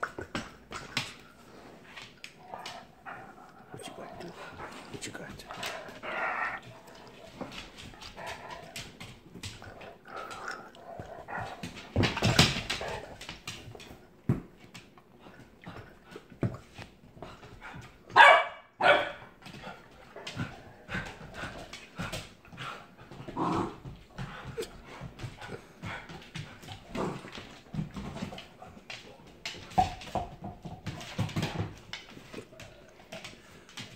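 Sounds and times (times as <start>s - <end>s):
dog barks: 18.1s - 19.2s.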